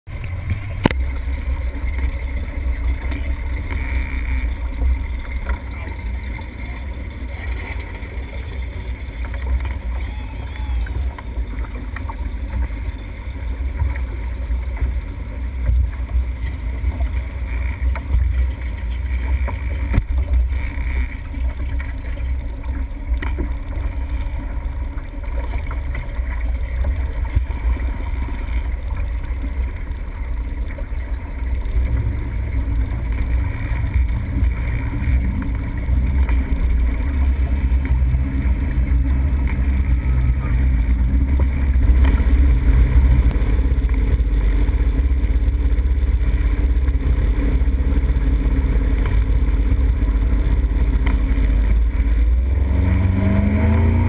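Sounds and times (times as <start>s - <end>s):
motorboat engine rumble: 0.0s - 54.0s
water rushing: 0.1s - 54.0s
wind on microphone: 0.1s - 54.0s.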